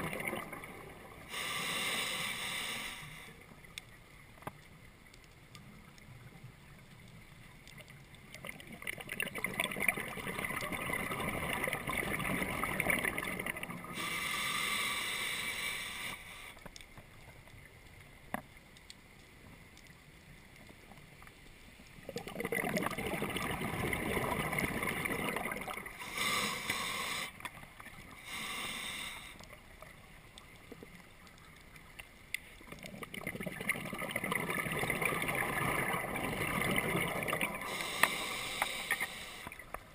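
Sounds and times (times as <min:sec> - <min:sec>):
bubbling regulator exhalations: 0:00.0 - 0:01.6, 0:08.4 - 0:14.4, 0:22.1 - 0:27.4, 0:32.7 - 0:39.6
hissing inhalation: 0:01.3 - 0:03.4, 0:13.9 - 0:16.6, 0:26.0 - 0:27.5, 0:28.2 - 0:29.5, 0:37.6 - 0:39.6.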